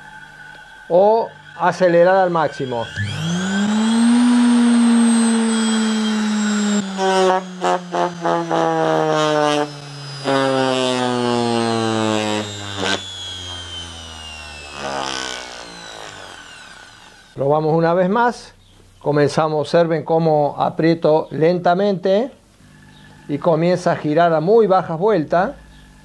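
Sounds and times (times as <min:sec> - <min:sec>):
electric motor whining: 0:00.0 - 0:17.4
motor cut-out clicks: 0:12.4 - 0:17.4.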